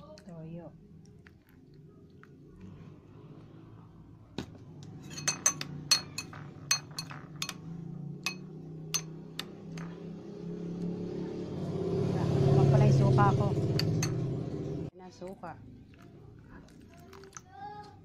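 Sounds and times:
spoon clinking in glass bowl: 5.0s - 7.6s, 8.2s - 9.1s.

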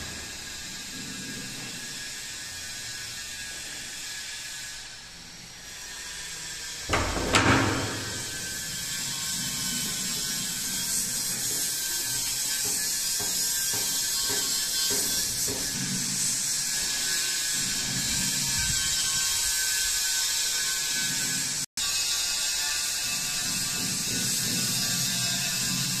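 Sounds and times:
door rattling open: 6.9s - 8.4s.

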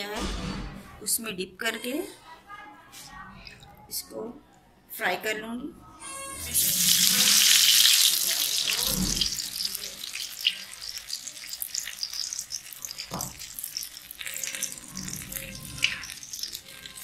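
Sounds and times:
deep frying in hot oil: 6.0s - 17.0s
oil crackling and popping: 6.5s - 17.0s.

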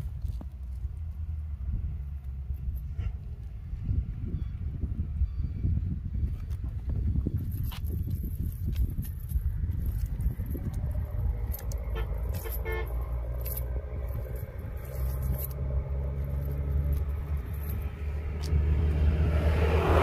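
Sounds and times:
vehicle engine running: 7.2s - 20.0s
short horn toot: 11.9s - 13.0s.

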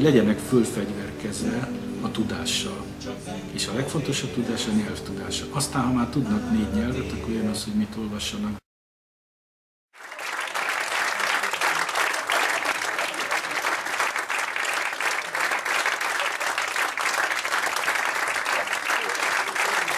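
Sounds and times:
audience applauding: 10.0s - 19.9s.

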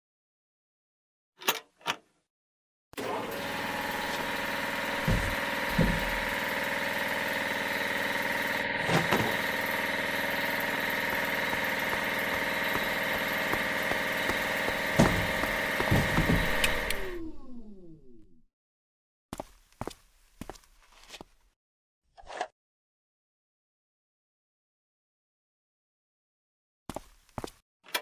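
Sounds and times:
drilling machine motor humming: 3.0s - 18.3s
short thumps: 5.0s - 6.4s, 11.2s - 17.3s.

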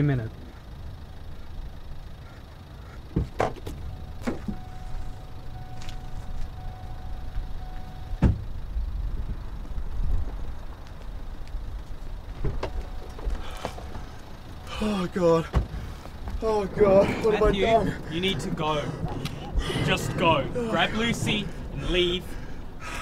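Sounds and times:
steady low rumble: 0.0s - 23.0s
car door shutting thud: 3.1s - 4.6s, 8.2s - 8.5s, 12.4s - 14.0s, 15.5s - 15.8s
steady single tone: 3.7s - 9.6s, 12.1s - 16.7s.

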